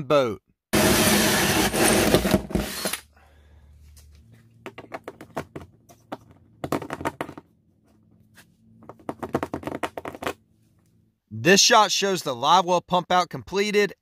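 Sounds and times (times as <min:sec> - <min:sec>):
power drill cutting aluminum: 0:00.8 - 0:03.1.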